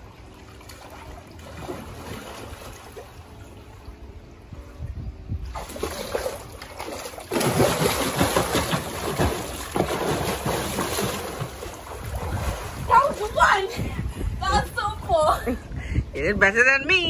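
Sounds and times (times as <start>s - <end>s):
swimmer splashing water: 0.0s - 4.6s, 5.4s - 13.8s
faint water sounds: 0.0s - 16.3s.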